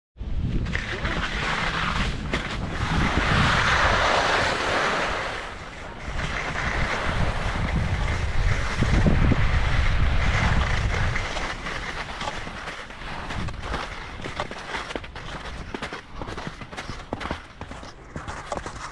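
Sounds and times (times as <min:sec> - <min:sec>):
wind on microphone: 0:00.2 - 0:14.4
skis scraping over slushy snow: 0:00.5 - 0:18.9.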